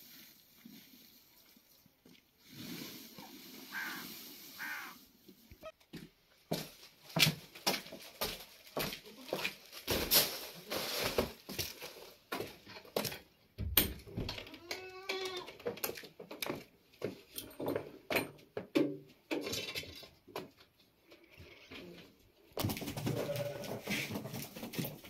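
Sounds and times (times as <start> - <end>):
goat kid bleating: 4.6 - 5.0, 14.5 - 15.5, 23.1 - 23.8
knocks and scuffs of movement: 4.6 - 13.5.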